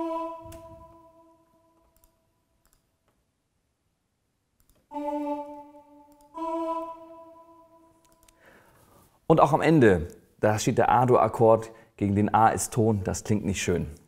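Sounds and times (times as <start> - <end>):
piano notes: 0.0 - 1.8, 4.9 - 8.1.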